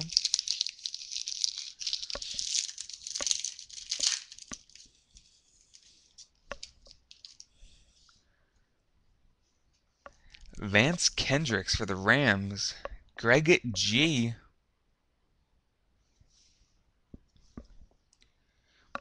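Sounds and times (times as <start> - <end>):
foil wrapper tearing and crinkling: 0.0 - 4.9, 6.6 - 7.5.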